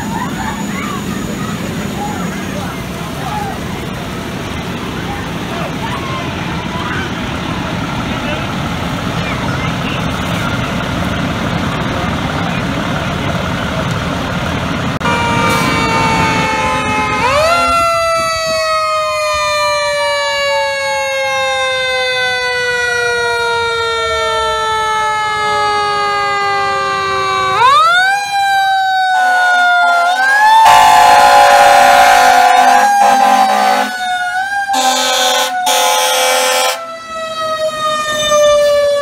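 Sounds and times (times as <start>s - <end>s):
truck engine running: 0.0s - 20.7s
fire truck siren: 0.0s - 39.0s.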